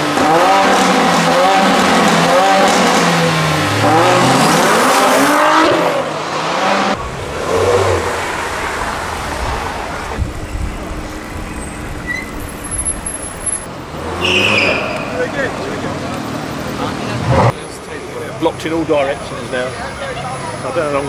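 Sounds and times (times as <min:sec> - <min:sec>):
cars driving past revving: 0:00.0 - 0:19.8
low engine rumble: 0:07.0 - 0:13.7.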